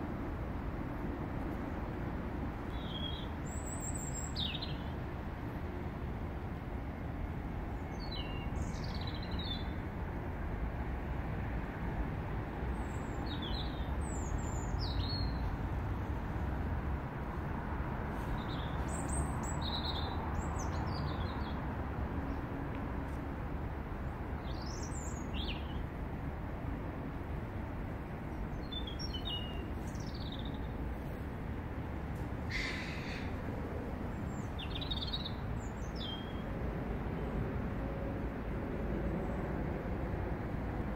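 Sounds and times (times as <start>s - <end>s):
low city rumble: 0.0s - 40.9s
robin singing: 12.8s - 15.4s, 24.4s - 25.8s, 28.5s - 30.7s, 34.2s - 36.4s.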